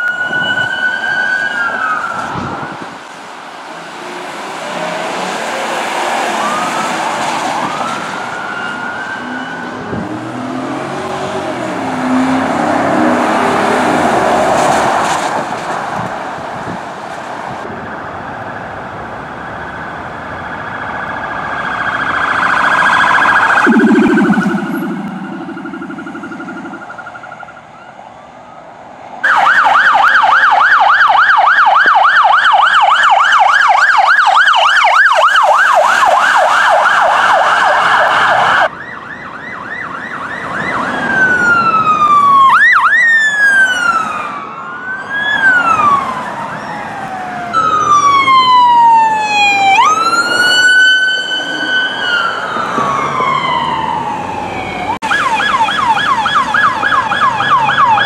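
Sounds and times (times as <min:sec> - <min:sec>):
police sirens: 0:00.0 - 0:58.0.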